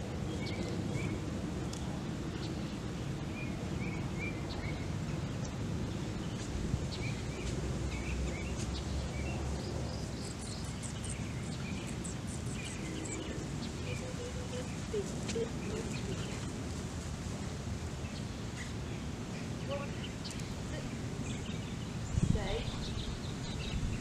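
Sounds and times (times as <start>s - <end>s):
low outdoor rumble: 0.0s - 24.0s
bird chirping: 2.4s - 16.6s, 18.0s - 24.0s.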